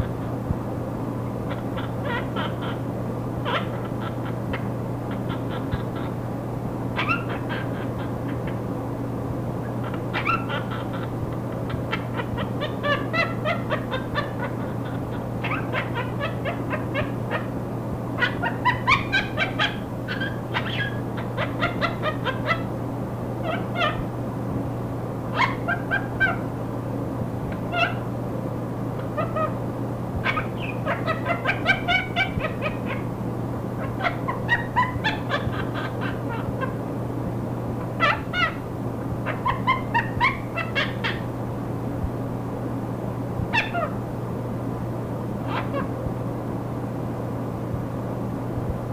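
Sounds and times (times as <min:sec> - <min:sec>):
low hum and static hiss: 0:00.0 - 0:48.9
parakeet laughing: 0:01.5 - 0:02.8, 0:03.4 - 0:06.2, 0:07.0 - 0:08.6, 0:09.6 - 0:17.6, 0:18.2 - 0:22.7, 0:23.4 - 0:24.0, 0:25.3 - 0:26.5, 0:27.5 - 0:28.0, 0:29.0 - 0:29.6, 0:30.2 - 0:33.1, 0:33.8 - 0:36.8, 0:37.8 - 0:38.6, 0:39.2 - 0:41.2, 0:43.5 - 0:44.0, 0:45.4 - 0:45.9.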